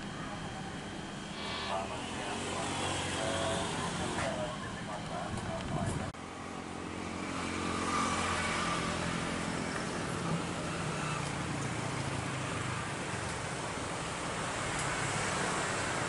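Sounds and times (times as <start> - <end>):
distant jet engines roaring: 0.0 - 16.0.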